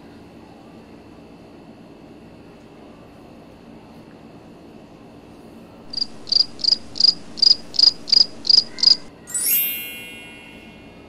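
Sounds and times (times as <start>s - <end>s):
cricket chirping: 5.9s - 9.1s
shimmering chime sweep: 9.1s - 11.0s.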